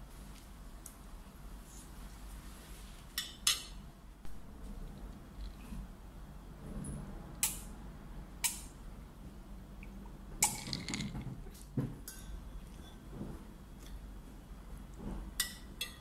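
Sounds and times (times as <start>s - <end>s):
cutlery clinking on a plate: 15.4s - 16.0s.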